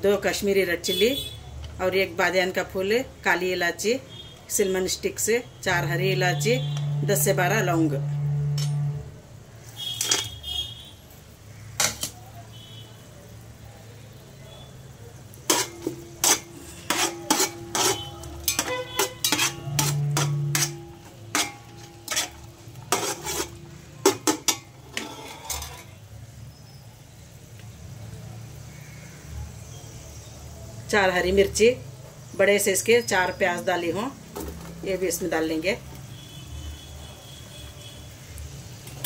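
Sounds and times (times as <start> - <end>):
spices sizzling in oil: 4.2 - 39.0
metal skimmer scraping a pot: 15.5 - 26.0.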